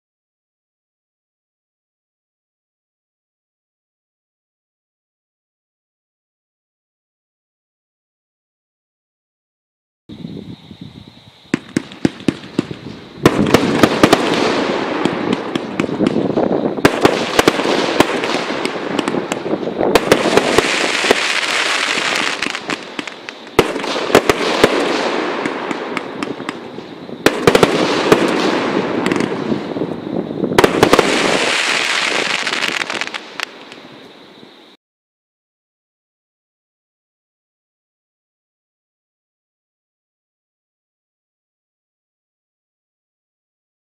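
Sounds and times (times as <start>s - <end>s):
fireworks crackling: 11.5s - 34.4s
fireworks launch and burst reports: 11.6s - 33.5s.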